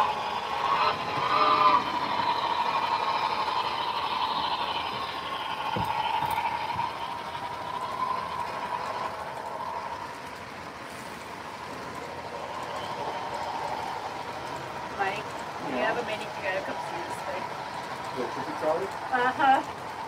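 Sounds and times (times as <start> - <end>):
model train running: 0.0 - 20.0.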